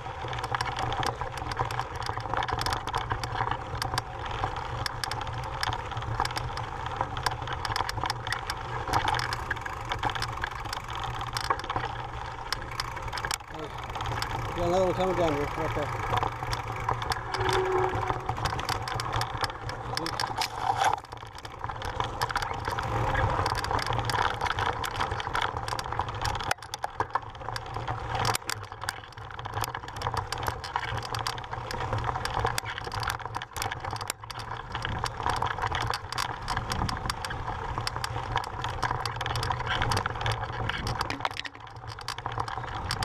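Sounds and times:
bike rattling: 0:00.0 - 0:43.0
tyres crunching on loose stones: 0:00.0 - 0:43.0
low rumble: 0:15.3 - 0:20.1.

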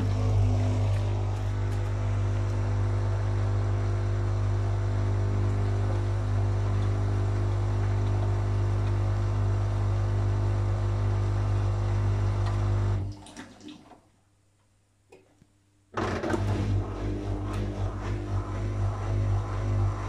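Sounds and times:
water gushing into a bucket: 0:00.0 - 0:03.0, 0:12.9 - 0:14.0
washing machine spinning: 0:00.0 - 0:13.4, 0:16.0 - 0:20.0.

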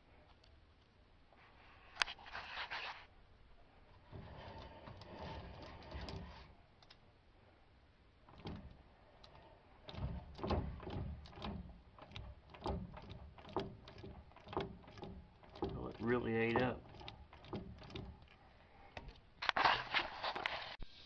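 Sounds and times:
metal scraping: 0:03.9 - 0:06.6
metal gears clunking: 0:04.0 - 0:06.6, 0:08.3 - 0:19.4.

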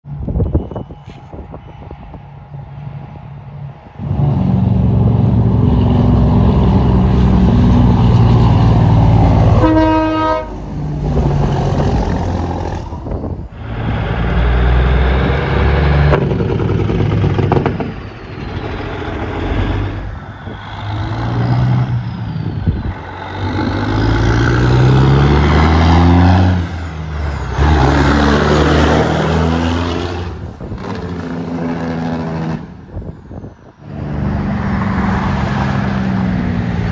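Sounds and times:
diesel truck engines revving: 0:00.1 - 0:36.9
truck horn blast: 0:09.4 - 0:10.8.

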